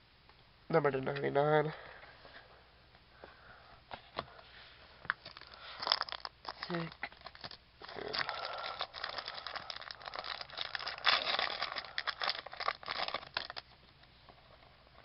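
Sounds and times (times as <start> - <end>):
wrapper crinkling and rustling: 5.2 - 13.8.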